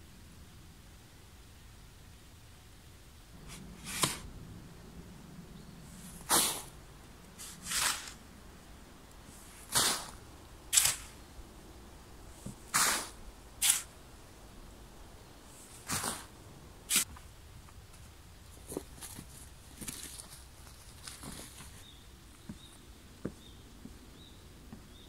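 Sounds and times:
spade digging sandy soil: 3.4s - 4.3s, 6.0s - 6.8s, 7.4s - 8.2s, 9.2s - 11.3s, 12.4s - 14.0s, 15.6s - 17.1s.

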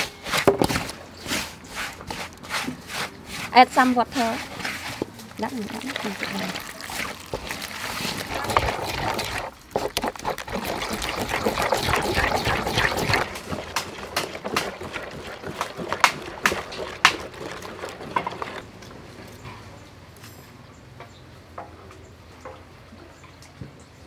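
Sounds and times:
wooden spoon stirring batter: 0.3s - 18.7s.

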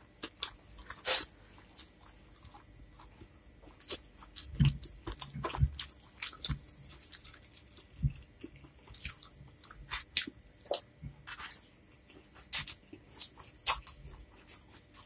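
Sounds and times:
chewing clicks and lip smacks: 0.2s - 15.0s.

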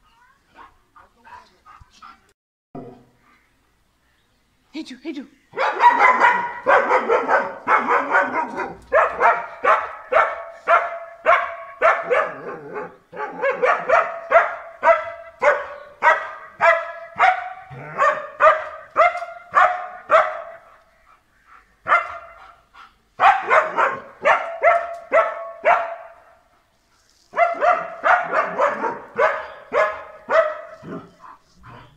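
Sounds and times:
dog barking: 5.5s - 20.8s, 21.8s - 22.6s, 23.2s - 26.4s, 27.3s - 31.4s.

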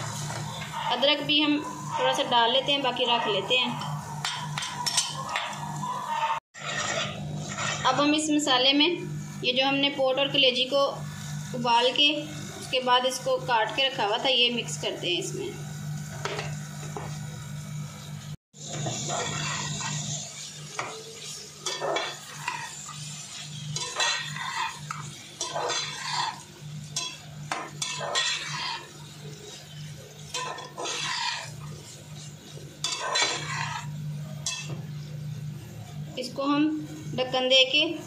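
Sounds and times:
metal spoon scraping a metal pan: 0.0s - 8.2s, 18.8s - 34.8s.

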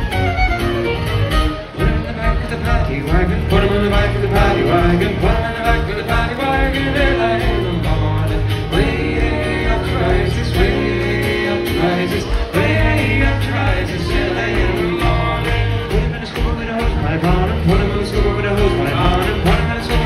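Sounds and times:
fiddle: 0.0s - 6.4s
acoustic guitar: 0.0s - 20.0s
person singing: 1.6s - 20.0s.

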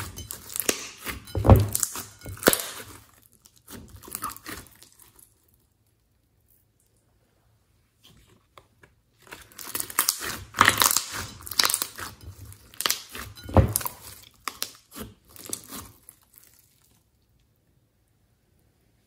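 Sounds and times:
slime crackling and popping: 0.0s - 5.3s, 9.2s - 17.0s.

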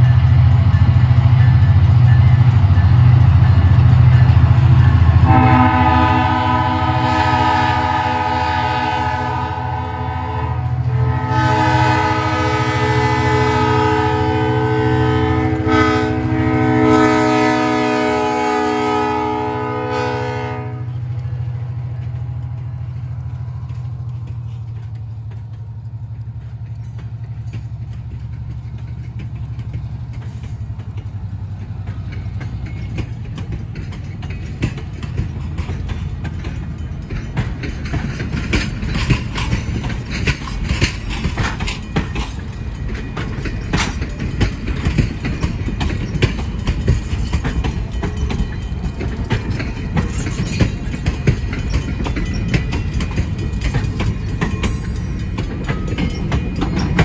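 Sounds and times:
train cars rolling past: 0.0s - 57.0s
locomotive air horn blasts: 5.1s - 21.1s
diesel engine rumble: 20.8s - 57.0s.

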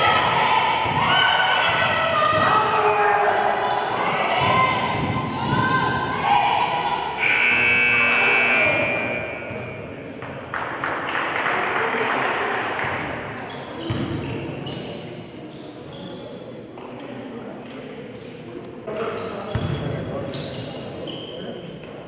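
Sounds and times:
basketball bouncing on court: 4.4s - 5.8s, 13.8s - 14.4s, 19.5s - 19.9s
scoreboard buzzer: 7.2s - 9.2s.

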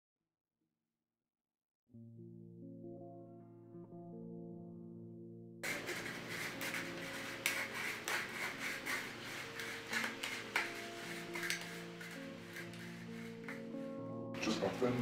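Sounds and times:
scratchy rubbing with crackling clicks: 5.6s - 13.8s
soft sustained music notes: 5.6s - 15.0s.

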